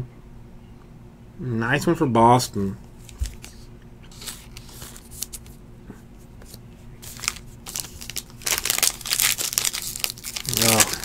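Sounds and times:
card and plastic sleeve rustling: 0:03.0 - 0:05.6, 0:06.2 - 0:11.0
foil wrapper crinkling: 0:03.0 - 0:05.6, 0:06.4 - 0:11.0.

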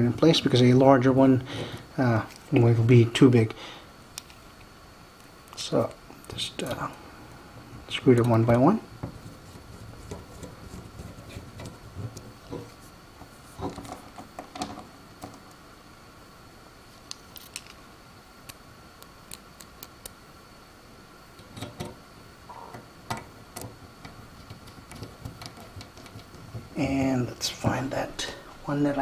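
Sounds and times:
faint electrical whine: 0:00.0 - 0:29.0.

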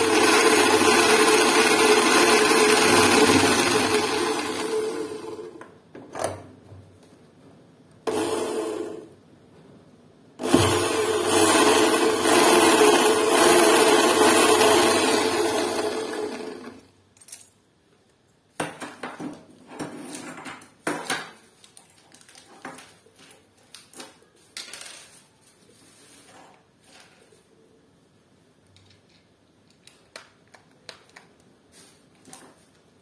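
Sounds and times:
electric drill driving a screw: 0:10.4 - 0:16.8.

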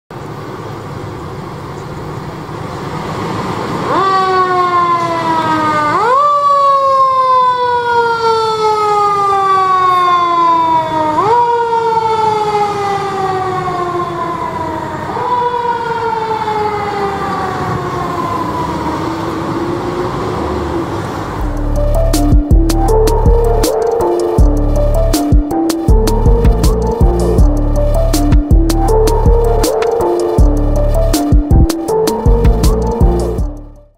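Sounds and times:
fire engine siren: 0:03.1 - 0:33.9
low engine rumble: 0:19.9 - 0:33.9.

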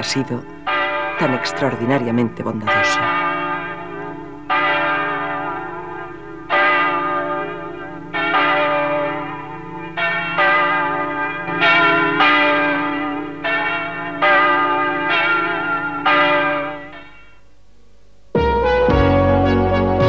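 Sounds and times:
church bell tolling: 0:00.0 - 0:17.5.

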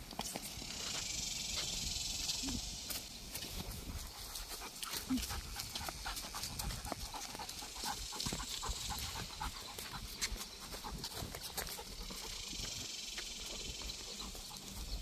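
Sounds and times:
dog panting: 0:03.6 - 0:15.0.

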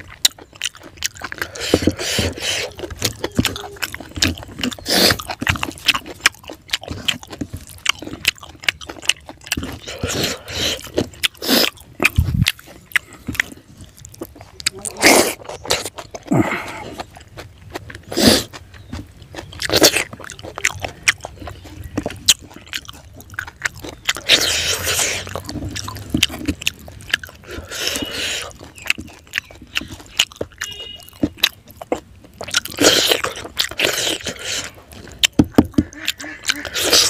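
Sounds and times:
wet chewing and lip smacks: 0:00.0 - 0:37.0
sucking: 0:27.4 - 0:28.6.

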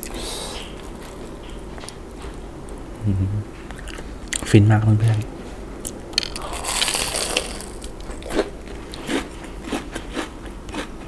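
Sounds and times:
crunchy food being chewed: 0:00.0 - 0:02.8, 0:05.8 - 0:11.0.

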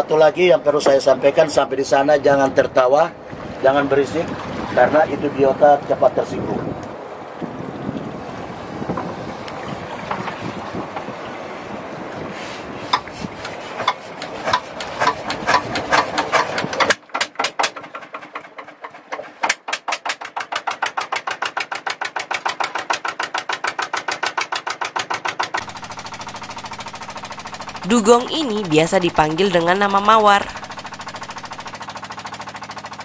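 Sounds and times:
diesel engine cranked by hand: 0:12.9 - 0:33.0
diesel engine chugging: 0:24.8 - 0:33.0.

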